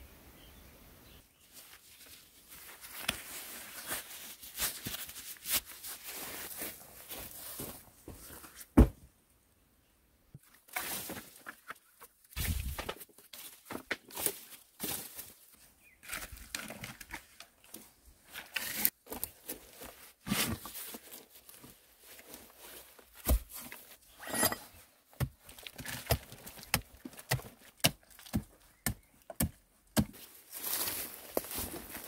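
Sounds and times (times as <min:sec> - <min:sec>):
rustle of sticks and soil: 0:01.2 - 0:08.7, 0:10.4 - 0:32.0
scraping soil: 0:18.3 - 0:21.3, 0:23.7 - 0:24.8.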